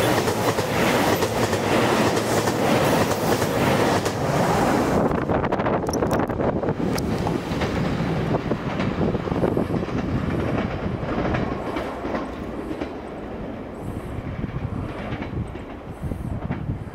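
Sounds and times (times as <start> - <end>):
diesel train passing: 0.0 - 16.9
wheels clacking over rail joints: 5.8 - 13.7, 14.3 - 16.7.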